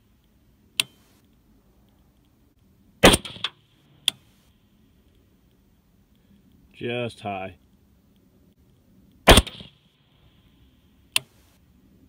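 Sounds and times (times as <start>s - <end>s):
sharp click: 0.8s - 1.4s, 11.1s - 11.4s
rifle shot with echo: 3.0s - 3.6s, 9.2s - 9.8s.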